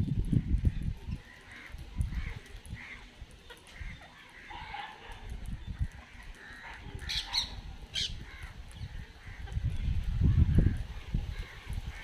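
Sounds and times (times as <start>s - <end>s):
parakeets chirping: 0.6s - 12.0s.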